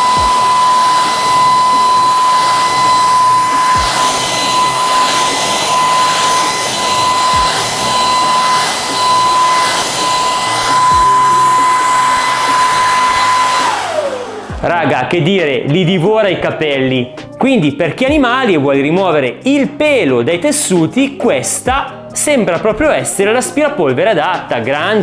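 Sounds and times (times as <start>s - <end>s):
rush of suction air: 0.0s - 14.6s
vacuum cleaner whine: 0.0s - 15.3s.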